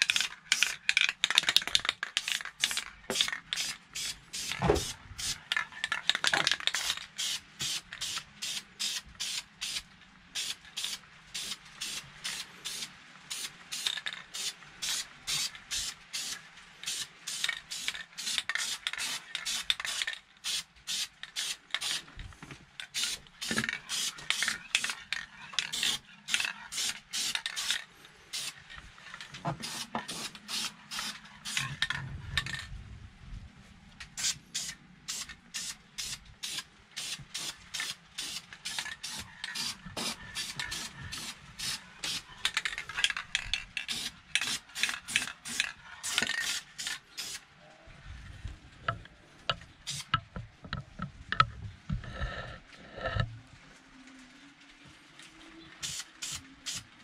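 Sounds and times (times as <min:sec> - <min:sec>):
aerosol spray can hissing: 0:02.2 - 0:05.5, 0:06.7 - 0:09.8, 0:10.4 - 0:22.1, 0:22.9 - 0:25.0, 0:25.6 - 0:28.6, 0:29.6 - 0:31.7, 0:34.2 - 0:42.3, 0:43.8 - 0:47.4, 0:55.8 - 0:56.8.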